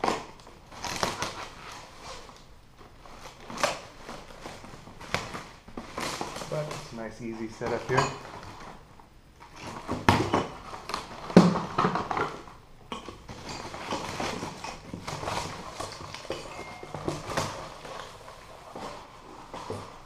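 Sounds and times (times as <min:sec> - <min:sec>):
cardboard rustling and scraping: 0:00.0 - 0:08.8, 0:13.2 - 0:20.0.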